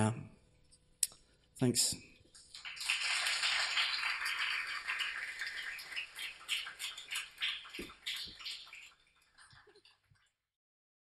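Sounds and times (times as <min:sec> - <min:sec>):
small audience applauding: 0:02.4 - 0:10.0.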